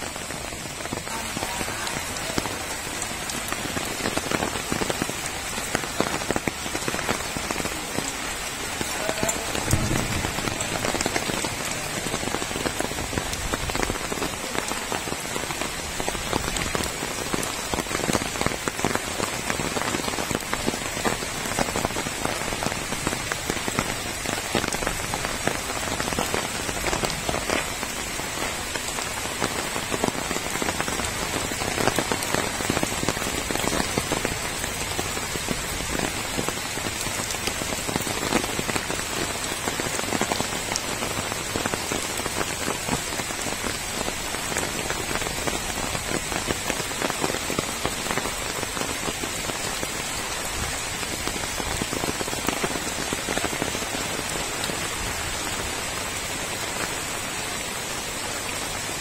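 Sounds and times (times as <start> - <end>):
rain pattering on ground: 0.0 - 59.0.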